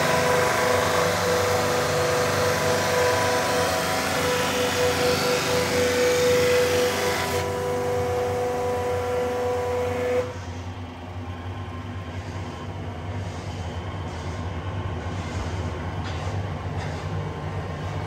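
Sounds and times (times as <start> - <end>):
brush sanding machine whining: 0.0 - 10.4.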